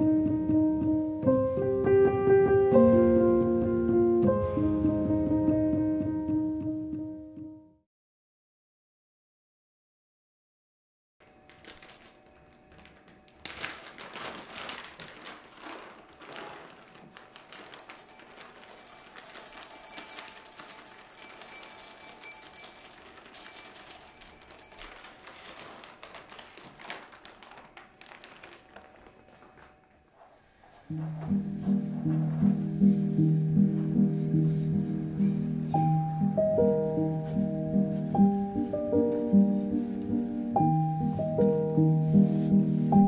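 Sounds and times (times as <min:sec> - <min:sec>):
chocolate pieces clinking into glass bowl: 0:17.6 - 0:25.1.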